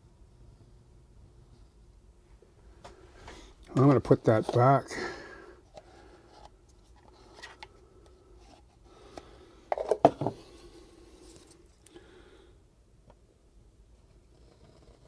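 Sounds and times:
object knocking on workbench: 0:09.8 - 0:10.4.

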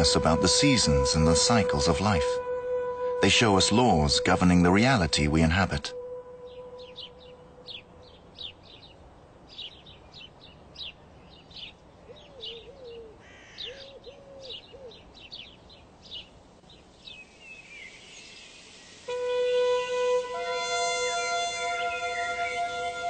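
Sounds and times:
music with held notes: 0:00.0 - 0:08.1, 0:19.2 - 0:23.0
low cooing call: 0:00.0 - 0:08.6, 0:12.0 - 0:15.1
birds chirping: 0:00.0 - 0:23.0.

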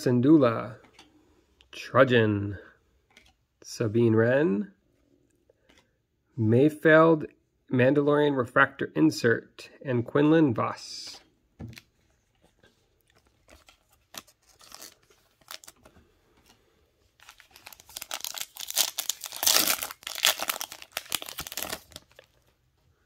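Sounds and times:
foil pack crinkling and tearing: 0:13.2 - 0:15.9, 0:17.2 - 0:22.4.

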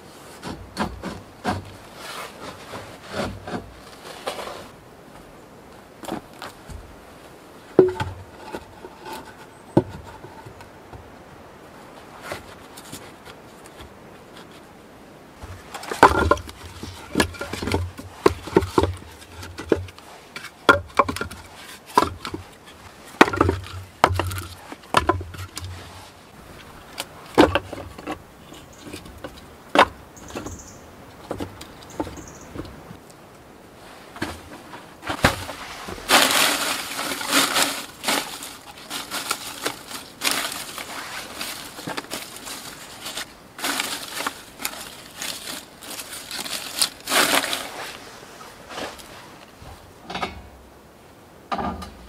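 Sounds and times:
firewood knocking and clattering: 0:00.4 - 0:01.8, 0:07.8 - 0:11.1, 0:15.4 - 0:33.0, 0:34.2 - 0:47.6.

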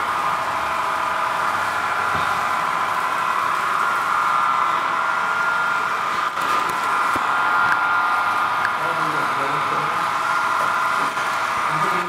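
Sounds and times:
model train whine and hum: 0:00.0 - 0:12.0.

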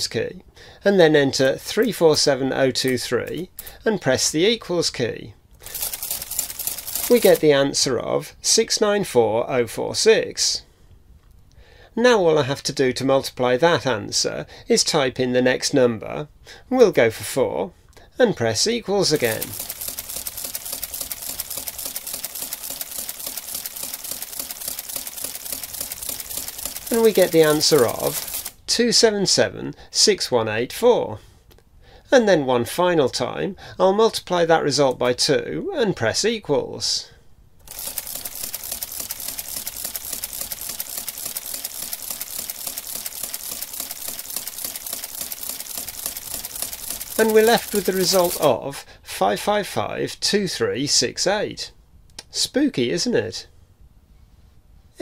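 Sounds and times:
adding machine clattering: 0:19.1 - 0:28.5, 0:37.7 - 0:48.5.

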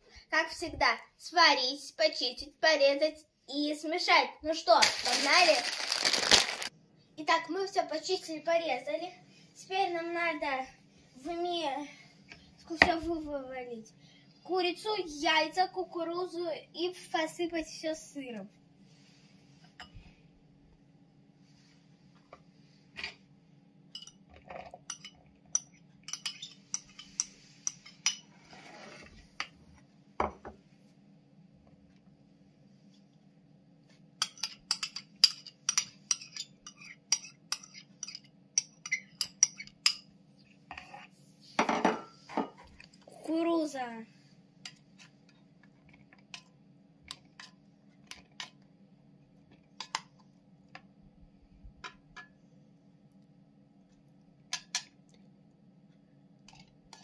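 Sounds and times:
spoon scraping glass bowl: 0:24.9 - 0:29.2.

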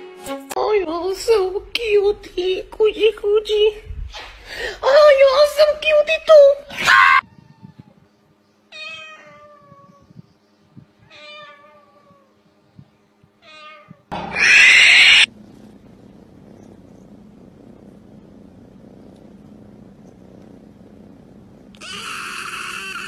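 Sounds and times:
kitten purring: 0:00.8 - 0:06.7, 0:15.1 - 0:23.0
cat meowing: 0:06.9 - 0:08.0, 0:08.7 - 0:10.1, 0:11.0 - 0:12.3, 0:13.4 - 0:15.3, 0:21.8 - 0:23.0.

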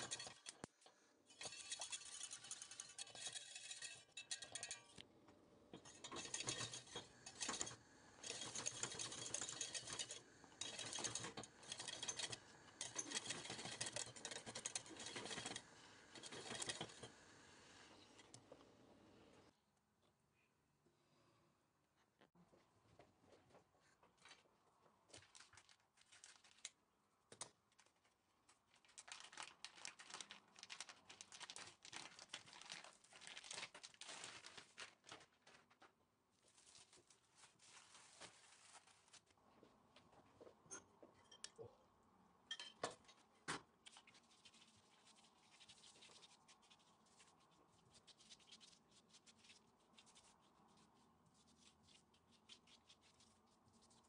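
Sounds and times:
plastic wrapping crinkling: 0:25.1 - 0:26.8, 0:27.7 - 0:39.4
soft handling noise: 0:33.6 - 0:41.8.

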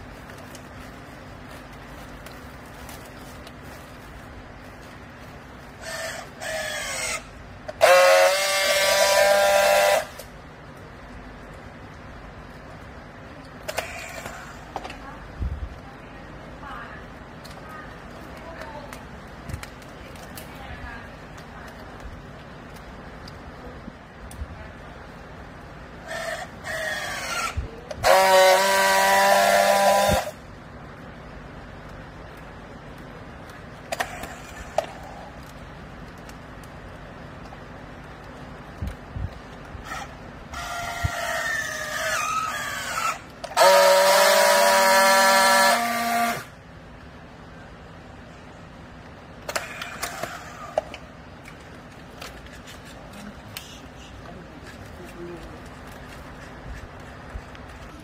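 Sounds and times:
high-pitched welding buzz: 0:05.8 - 0:10.3, 0:26.0 - 0:30.4, 0:39.9 - 0:46.6
strapping tool motor whines: 0:05.8 - 0:10.3, 0:26.0 - 0:30.4, 0:39.8 - 0:46.5.

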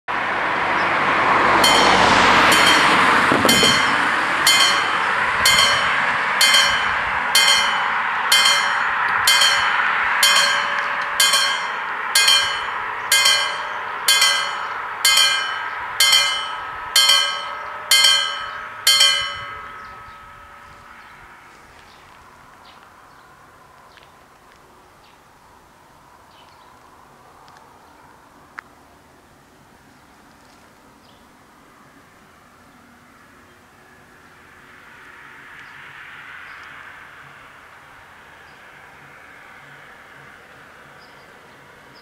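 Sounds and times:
loud rushing noise: 0:00.2 - 0:21.4
level crossing warning bells: 0:01.1 - 0:21.8.

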